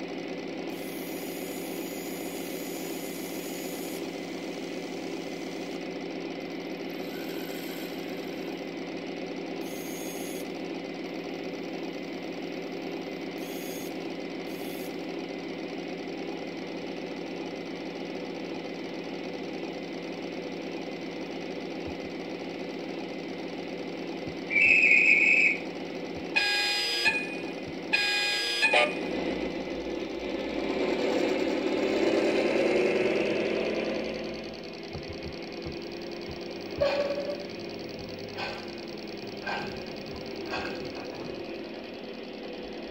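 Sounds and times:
model train electric hum: 0.0s - 42.9s
high train toot: 24.4s - 29.6s, 36.6s - 38.7s
loud train whistle blasts: 24.5s - 25.6s, 26.4s - 29.0s.

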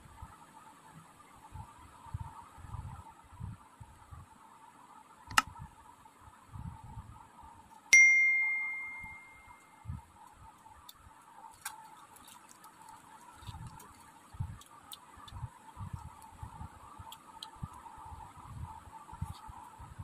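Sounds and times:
sharp click: 5.3s - 5.5s
metal bowl ringing ding: 7.9s - 9.7s.

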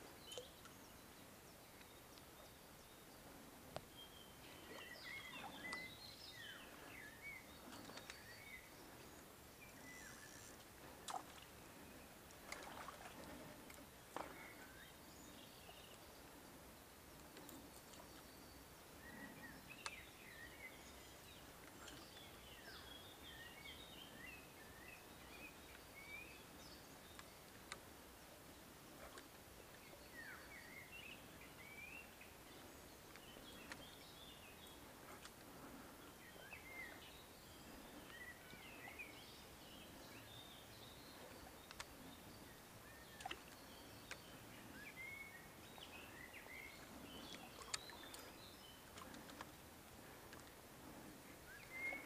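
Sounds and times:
faint bird chirps: 0.0s - 13.1s, 51.2s - 52.0s
quiet hiss: 0.0s - 52.0s
faint sharp clicks: 1.8s - 2.3s, 3.7s - 3.9s, 5.4s - 5.9s, 9.7s - 11.5s, 19.7s - 20.0s, 27.1s - 27.9s, 33.1s - 33.9s, 41.2s - 42.0s, 43.1s - 44.4s, 47.3s - 49.6s, 50.2s - 50.6s.

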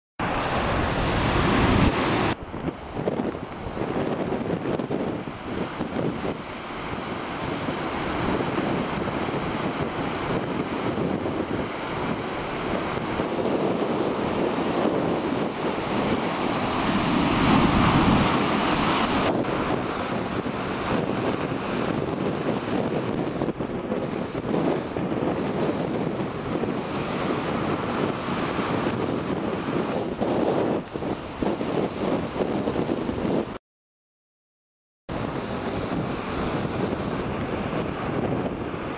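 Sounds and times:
storm surf breaking: 0.2s - 33.6s, 35.1s - 38.9s
wind buffeting microphone: 0.2s - 33.6s, 35.1s - 38.9s.

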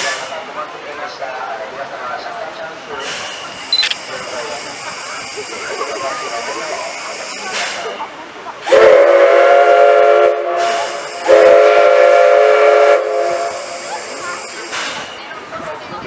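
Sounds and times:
steam locomotive whistle: 8.6s - 14.8s.

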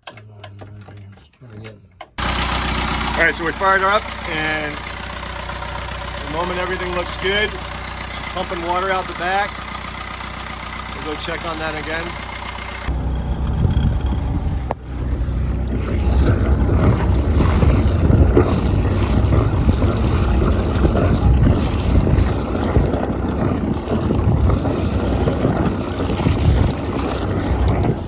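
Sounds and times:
diesel engine running: 2.1s - 28.0s
water gushing and splashing: 15.6s - 28.0s.

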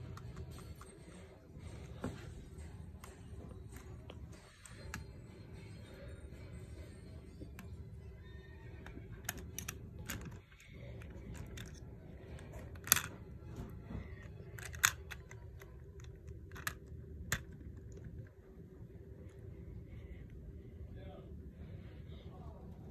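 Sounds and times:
plastic bricks clicking: 14.6s - 18.3s.

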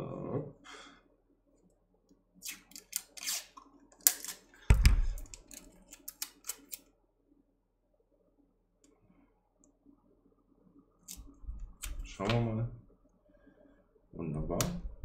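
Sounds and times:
small metallic clicks and scrapes: 5.2s - 6.9s.

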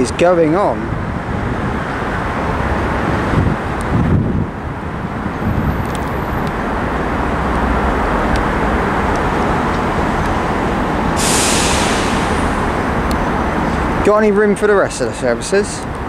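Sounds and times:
diesel train engines rumbling: 0.0s - 16.0s
hiss: 11.2s - 12.7s.

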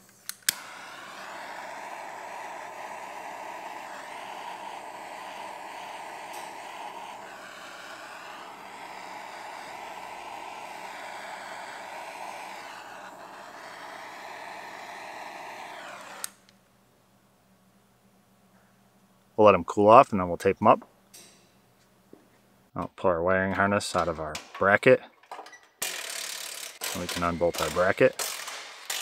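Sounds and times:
gas torch hissing: 0.0s - 16.6s, 26.1s - 29.0s.

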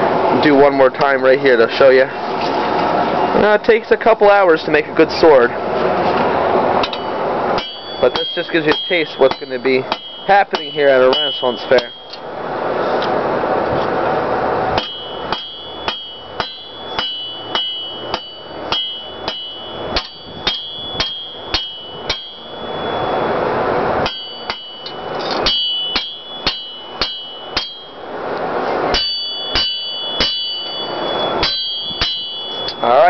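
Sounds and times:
hammer ringing on anvil: 6.8s - 12.3s, 14.8s - 28.2s, 28.9s - 33.0s.

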